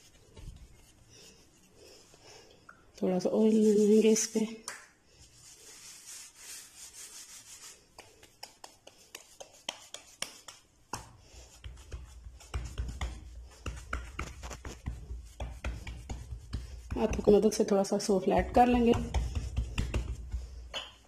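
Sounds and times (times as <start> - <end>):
hands rubbing oil on board: 0.0 - 2.0, 5.2 - 20.7
dull thumps of dough pressed: 8.0 - 17.6, 18.3 - 20.8.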